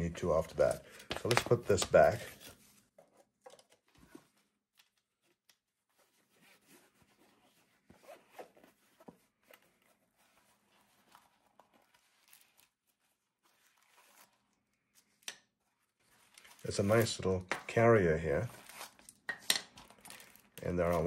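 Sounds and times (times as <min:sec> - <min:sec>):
zipper being pulled open: 0:06.4 - 0:08.8.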